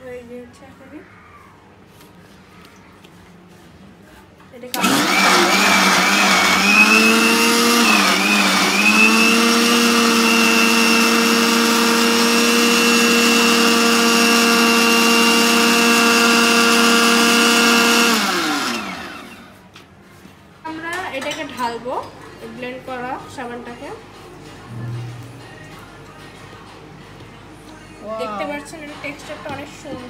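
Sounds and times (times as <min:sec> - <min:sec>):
blender running: 0:04.8 - 0:19.6.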